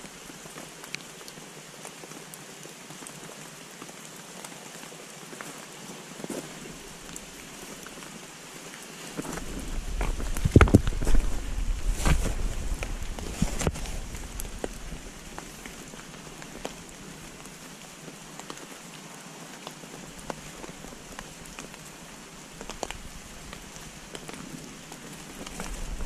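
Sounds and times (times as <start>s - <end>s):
soft rain hiss: 0.0s - 26.0s
raindrops ticking: 6.4s - 8.4s, 9.1s - 18.9s, 19.6s - 26.0s.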